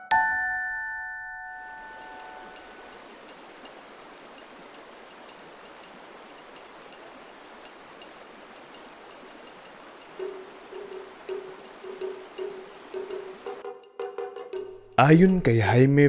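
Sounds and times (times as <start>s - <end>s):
wood-block percussion knocking: 8.6s - 15.8s.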